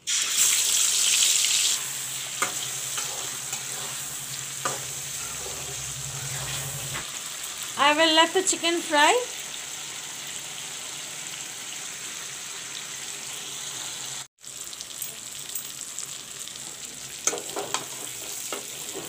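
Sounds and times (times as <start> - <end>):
chicken sizzling in hot oil: 0.0 - 19.0
metal spatula scraping a pan: 1.8 - 7.1, 17.3 - 19.0.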